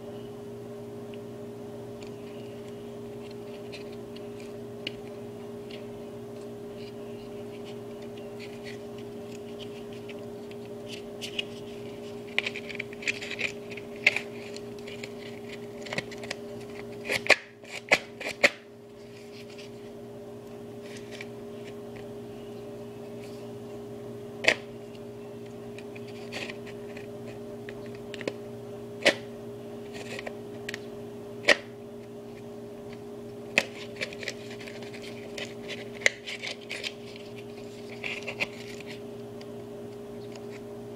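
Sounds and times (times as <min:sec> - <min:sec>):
steady hum: 0:00.0 - 0:40.9
cardboard rustling: 0:33.6 - 0:39.0.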